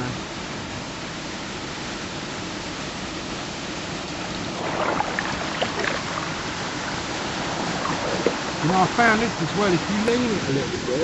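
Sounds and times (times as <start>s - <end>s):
steady hiss: 0.0s - 11.0s
paddle splashing in water: 4.4s - 9.9s.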